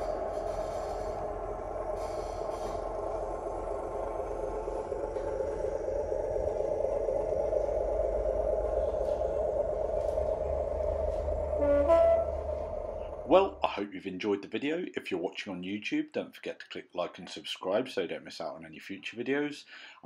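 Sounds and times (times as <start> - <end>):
model train diesel engine sound: 0.0 - 14.3.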